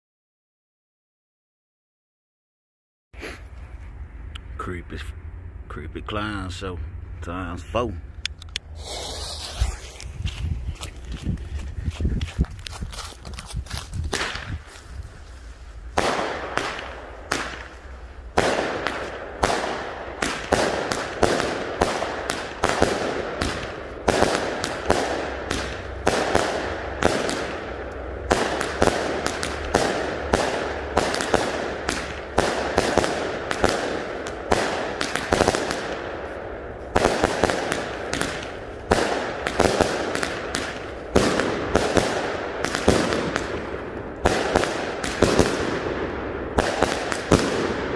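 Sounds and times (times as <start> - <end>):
fireworks shots and aerial breaks: 8.1 - 11.7, 12.7 - 14.8, 15.8 - 47.9.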